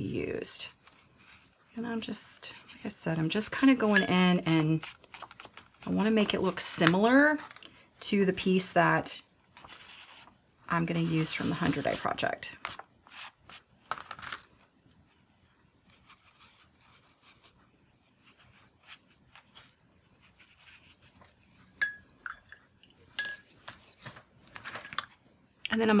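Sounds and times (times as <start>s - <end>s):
paintbrush rubbing on paper: 15.8s - 21.6s
short glass clinks: 21.8s - 22.6s.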